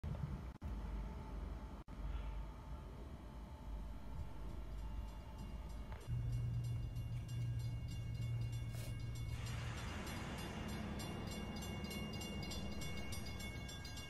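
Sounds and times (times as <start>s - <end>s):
steam train low rumble: 0.1s - 14.0s
steam hissing: 8.7s - 12.1s.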